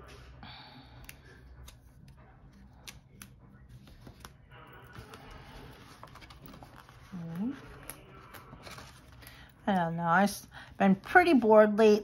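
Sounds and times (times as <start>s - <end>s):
paper rustling: 2.5s - 9.5s.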